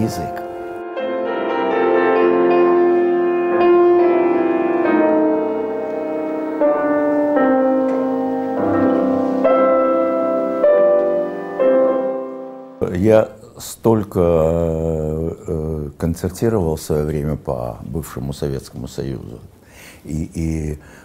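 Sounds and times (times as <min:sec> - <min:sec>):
grand piano playing classical piece: 0:00.0 - 0:13.3.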